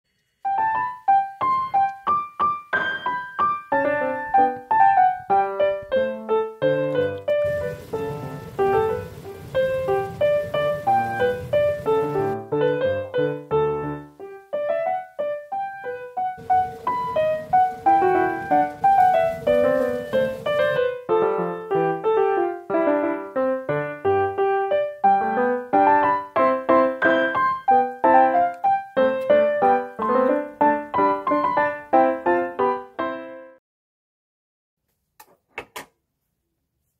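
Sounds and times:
piano melody: 0.4 - 33.6.

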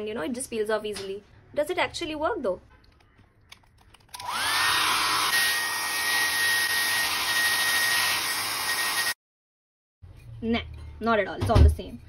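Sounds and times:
hair dryer blowing: 4.2 - 9.2.

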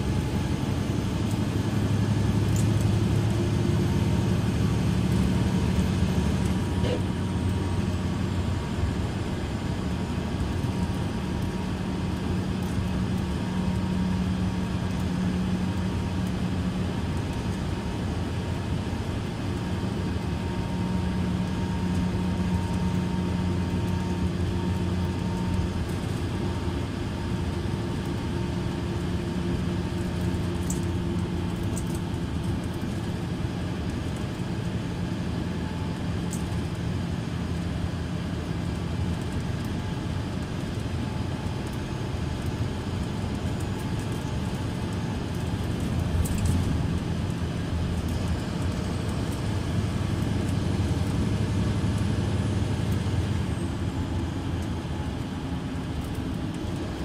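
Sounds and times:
bus diesel engine idling: 0.0 - 35.6, 46.7 - 56.6.

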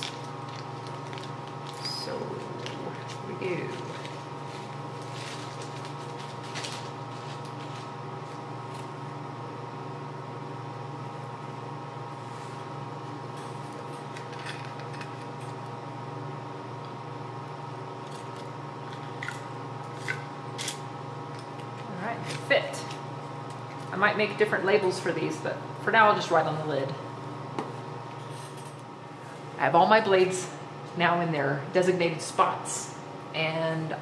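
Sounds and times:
plastic rustling: 0.0 - 8.9
steady mechanical hum: 0.0 - 34.0.

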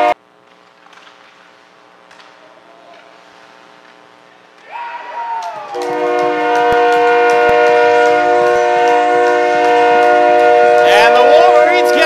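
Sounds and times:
people clapping and cheering: 4.6 - 12.0
arena goal horn: 5.7 - 12.0.

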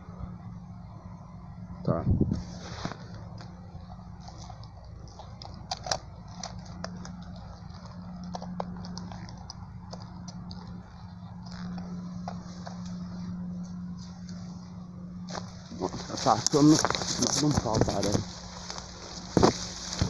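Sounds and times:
twigs snapping: 4.2 - 13.0, 15.3 - 20.0
footsteps crunching dry leaves: 11.4 - 20.0.

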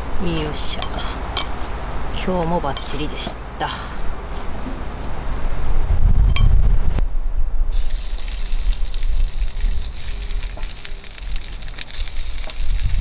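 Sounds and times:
skillet sizzling: 7.7 - 13.0.

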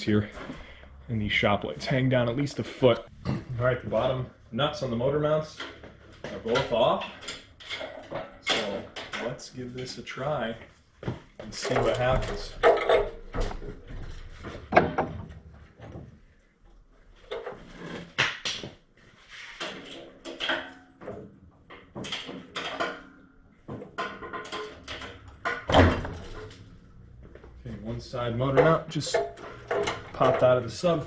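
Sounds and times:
hydraulic hoist clunking and creaking: 5.0 - 10.0, 11.2 - 16.1, 19.5 - 31.0.

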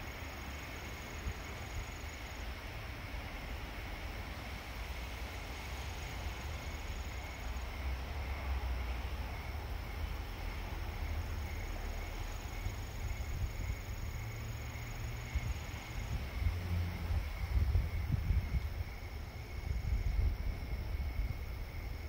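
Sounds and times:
distant city traffic rumble: 0.0 - 22.0
insects trilling: 0.0 - 22.0
light rain hiss: 0.0 - 22.0.

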